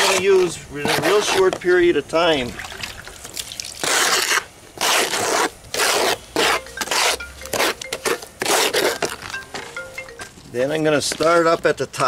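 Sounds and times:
trowel scraping mortar in tub: 0:00.0 - 0:01.8, 0:03.8 - 0:09.2.

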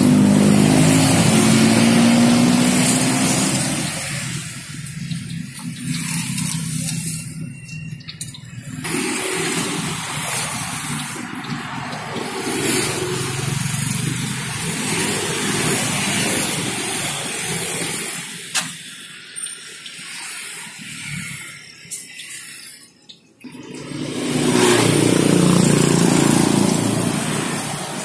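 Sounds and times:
engine rumble passing close: 0:00.0 - 0:07.3, 0:23.5 - 0:28.0
roadside traffic: 0:00.0 - 0:28.0.

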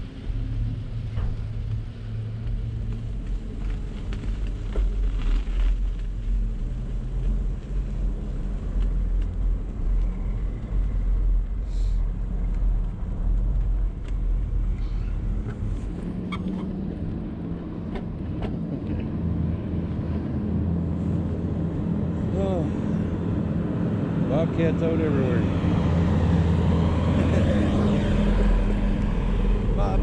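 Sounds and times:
bicycle tyre noise on ice: 0:00.3 - 0:17.3.

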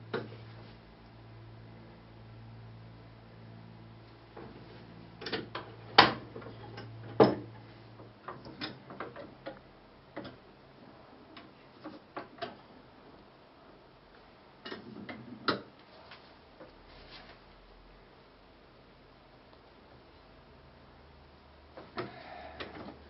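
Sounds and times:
printing press lever clicks and knocks: 0:05.2 - 0:10.4.

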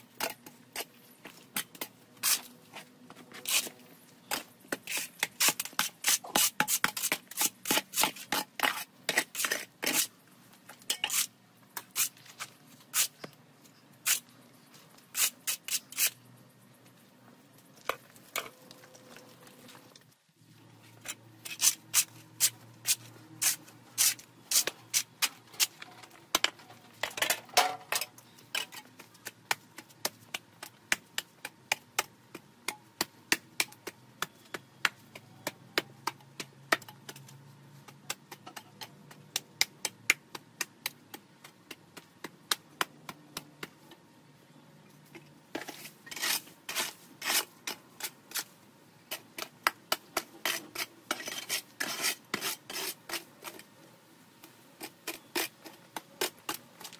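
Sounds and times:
garden tool scraping concrete: 0:00.0 - 0:10.2, 0:10.8 - 0:13.4, 0:15.1 - 0:16.2, 0:20.8 - 0:31.4, 0:45.5 - 0:53.7, 0:54.7 - 0:56.9.

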